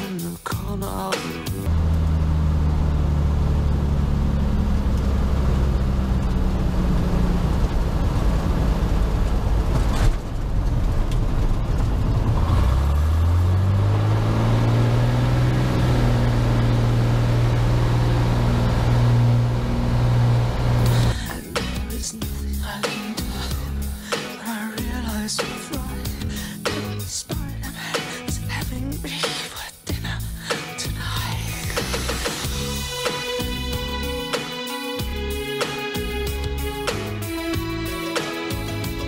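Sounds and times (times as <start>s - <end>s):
aircraft engine and propeller: 1.8s - 14.3s.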